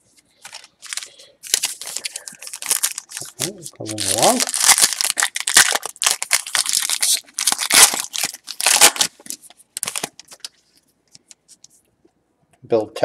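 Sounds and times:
wrapper tearing and crinkling: 0:00.4 - 0:10.6.

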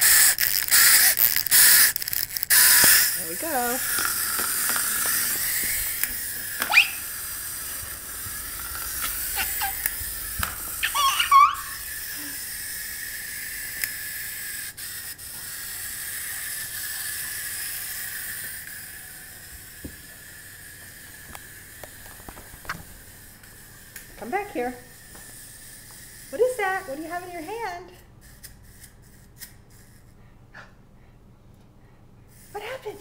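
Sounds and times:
clockwork toy motor whirring: 0:00.0 - 0:30.1, 0:32.3 - 0:33.0
toddler squealing: 0:06.6 - 0:07.1, 0:09.0 - 0:12.4.

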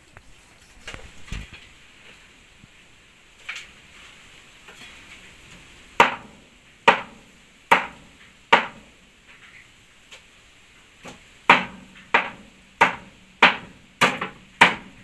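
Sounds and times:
knife chopping meat on wooden board: 0:06.0 - 0:06.3, 0:06.9 - 0:08.9, 0:11.0 - 0:15.0.

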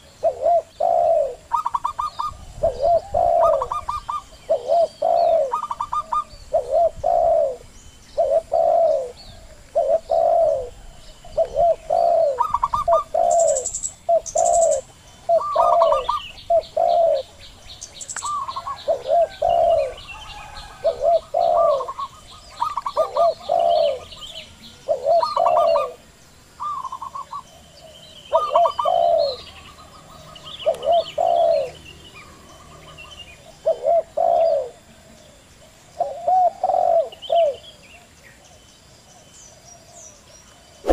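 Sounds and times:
doves cooing: 0:00.0 - 0:26.0, 0:26.6 - 0:35.0, 0:36.0 - 0:37.7
small birds chirping: 0:00.0 - 0:40.9.

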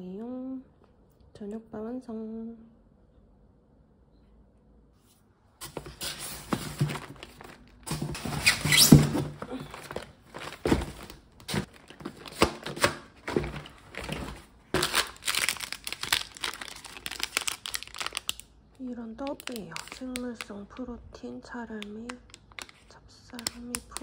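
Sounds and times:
plastic snack package crinkling: 0:09.6 - 0:21.0, 0:21.8 - 0:24.0.

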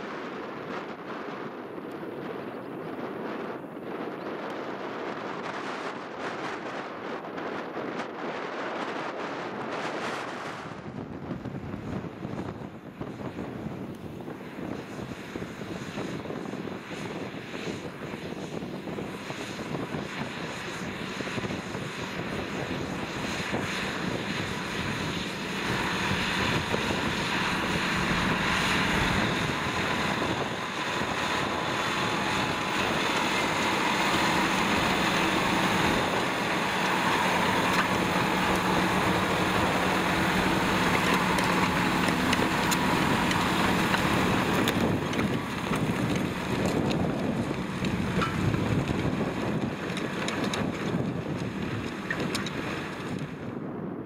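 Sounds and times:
tractor diesel engine under load: 0:20.8 - 0:53.5.

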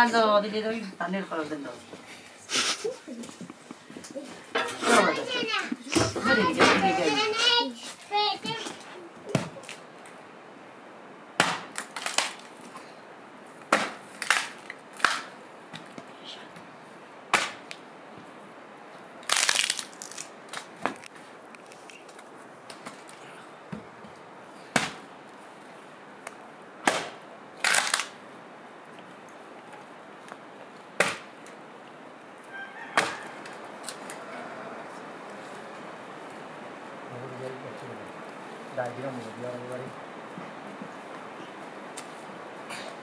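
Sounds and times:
axe chopping log: 0:11.4 - 0:12.3, 0:13.7 - 0:15.3, 0:17.3 - 0:17.6, 0:24.7 - 0:25.0, 0:26.8 - 0:27.2, 0:31.0 - 0:31.3.

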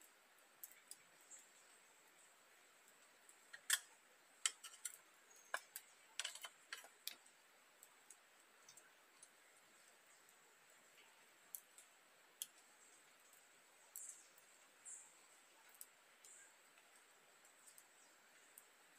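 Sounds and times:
metal utensil clinking on pans: 0:04.4 - 0:06.9.

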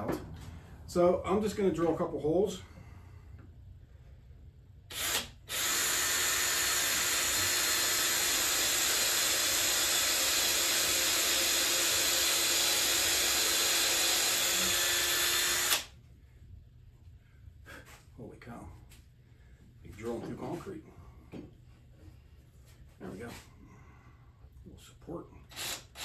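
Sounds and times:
cordless drill boring into wood: 0:04.9 - 0:15.9, 0:25.5 - 0:26.0.

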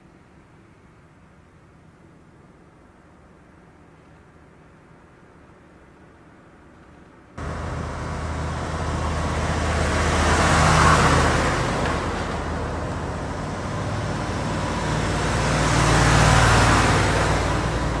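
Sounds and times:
heavy trucks driving past: 0:07.4 - 0:18.0.

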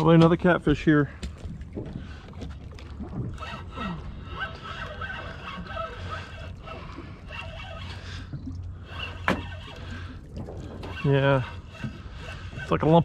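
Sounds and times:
water lapping around boat: 0:00.0 - 0:13.0.

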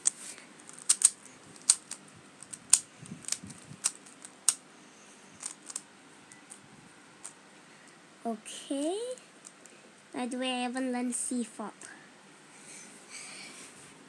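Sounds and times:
puzzle cube plastic clicks: 0:00.0 - 0:04.6, 0:05.4 - 0:05.8.

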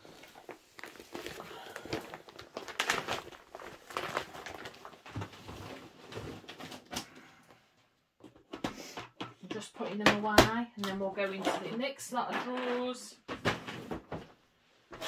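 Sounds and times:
plastic mesh bags rustling: 0:00.0 - 0:06.9.

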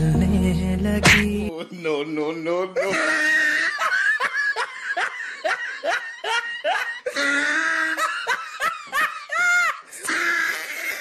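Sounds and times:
person laughing hard: 0:02.8 - 0:11.0.

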